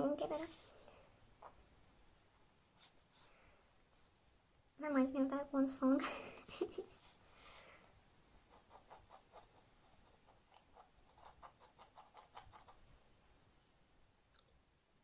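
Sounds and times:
pen nib scratching on paper: 0:08.3 - 0:12.8.

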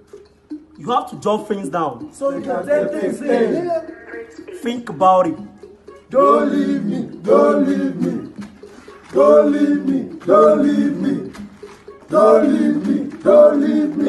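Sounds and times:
men chanting in unison: 0:02.2 - 0:04.3, 0:06.1 - 0:08.4, 0:09.1 - 0:11.4, 0:12.1 - 0:14.0.

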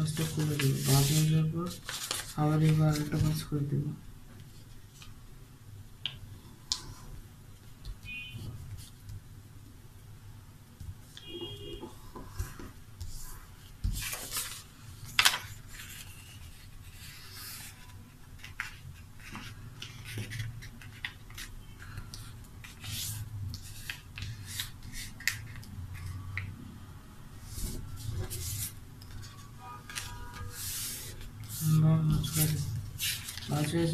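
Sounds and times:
paper being folded: 0:00.0 - 0:03.5, 0:12.5 - 0:26.2, 0:27.4 - 0:33.9.

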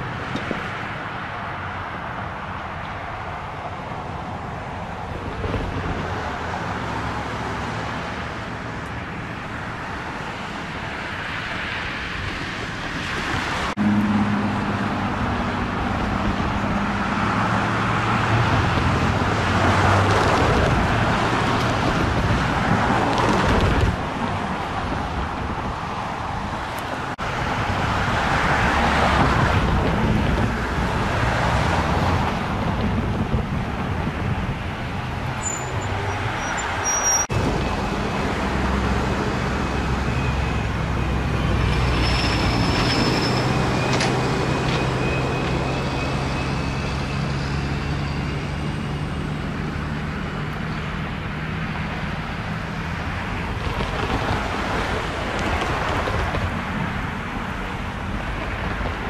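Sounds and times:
diesel locomotive engine droning: 0:00.0 - 0:59.0.

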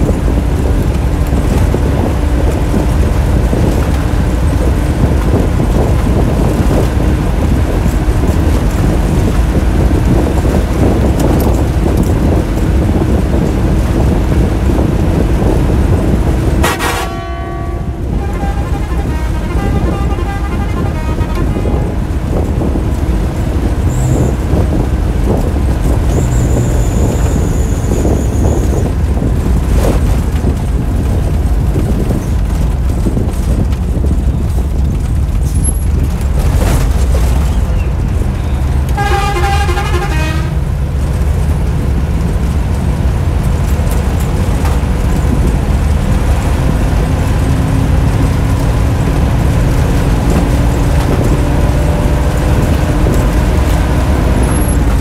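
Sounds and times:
bus engine running: 0:00.0 - 0:55.0
road noise: 0:00.0 - 0:55.0
wavering horn: 0:16.6 - 0:22.1, 0:39.0 - 0:40.6.

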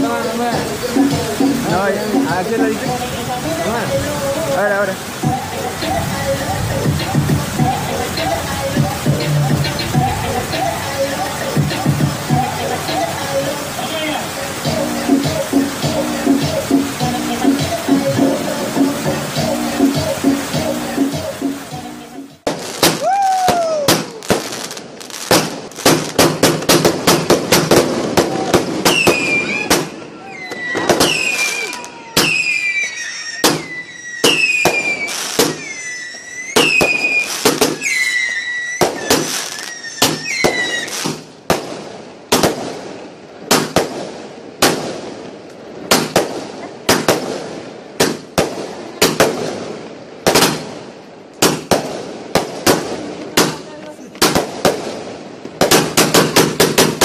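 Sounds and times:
firecrackers banging: 0:00.0 - 0:57.0
short falling whistles: 0:28.9 - 0:41.0.

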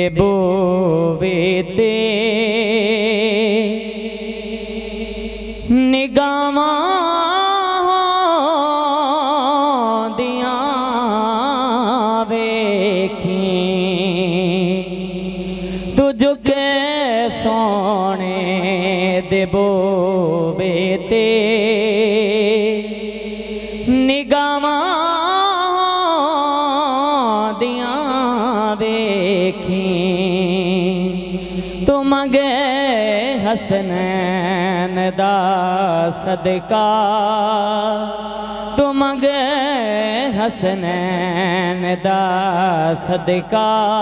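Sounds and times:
man singing: 0:15.9 - 0:23.0, 0:31.8 - 0:38.2, 0:38.8 - 0:44.0.

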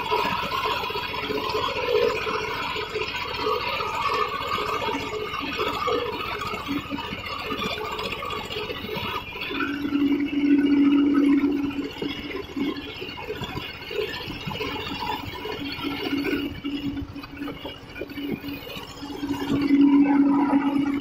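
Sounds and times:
steady low drone: 0:08.2 - 0:21.0.

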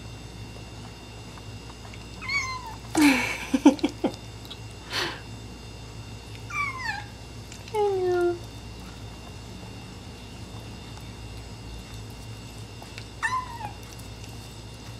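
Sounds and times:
kitten meowing: 0:02.2 - 0:02.8, 0:06.5 - 0:07.1, 0:13.2 - 0:13.8.

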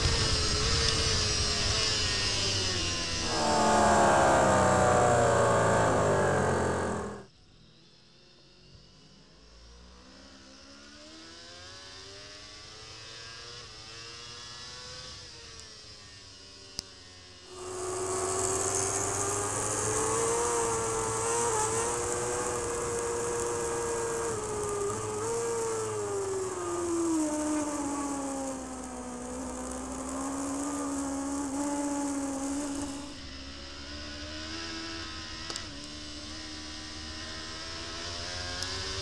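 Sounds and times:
superbike engine at high revs: 0:02.4 - 0:07.3, 0:17.5 - 0:39.0
rushing hiss: 0:03.2 - 0:07.2, 0:17.5 - 0:33.2.

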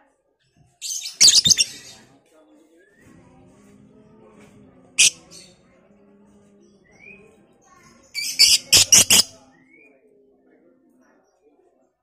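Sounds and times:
lovebird calls and chirps: 0:00.8 - 0:02.0, 0:05.0 - 0:05.5, 0:08.1 - 0:09.3
harsh rapid bird chattering: 0:01.0 - 0:01.8, 0:05.0 - 0:05.2, 0:08.2 - 0:09.3.

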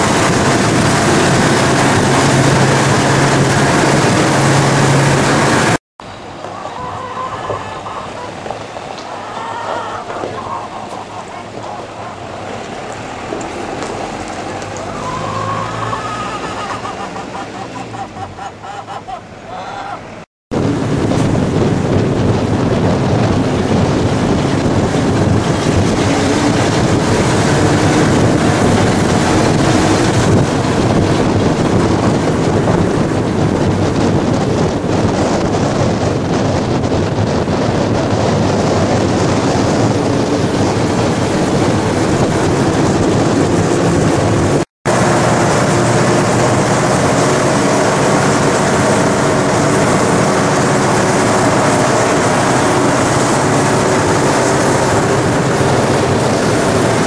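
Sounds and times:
wind on microphone: 0:00.0 - 0:05.8, 0:20.5 - 0:57.0
vehicle rushing on road: 0:00.0 - 0:57.0.

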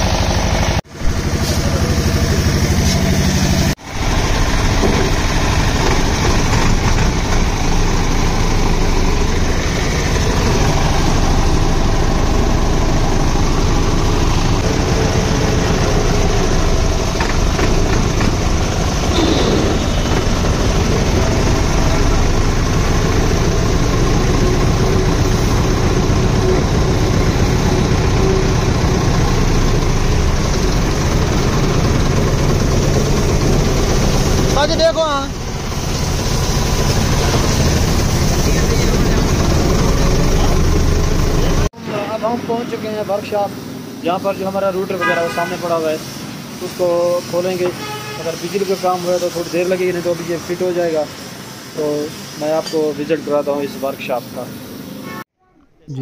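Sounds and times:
tractor diesel engine idling: 0:00.0 - 0:43.4.

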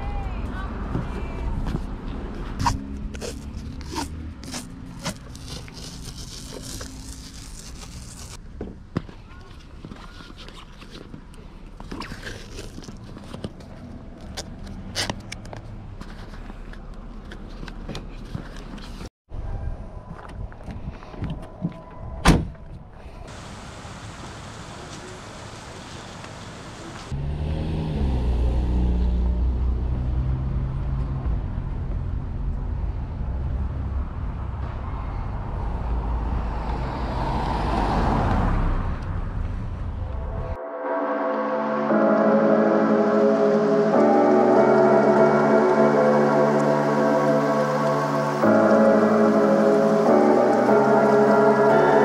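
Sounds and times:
vehicle engine humming: 0:00.0 - 0:08.6, 0:23.3 - 0:52.0
handling scrapes: 0:02.5 - 0:08.4
adhesive tape ripping off roll: 0:02.6 - 0:08.4
car passing: 0:23.3 - 0:52.0.

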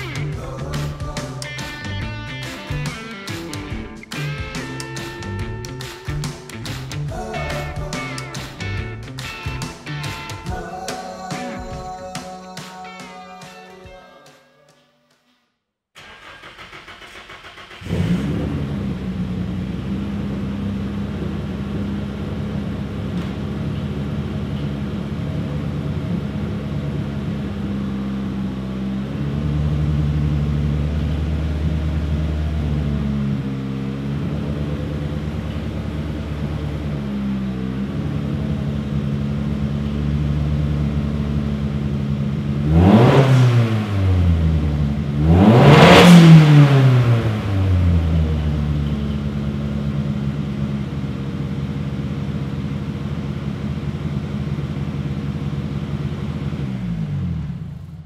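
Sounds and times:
car engine starting and idling: 0:00.0 - 0:12.2, 0:16.0 - 0:58.0
engine revving blips: 0:16.0 - 0:50.2.

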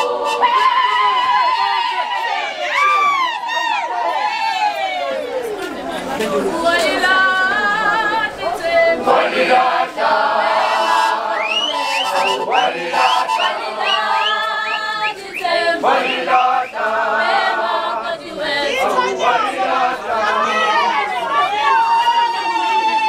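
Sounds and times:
group singing a cappella: 0:00.0 - 0:02.6, 0:05.6 - 0:21.5
upward-swooping high calls: 0:10.6 - 0:16.9.

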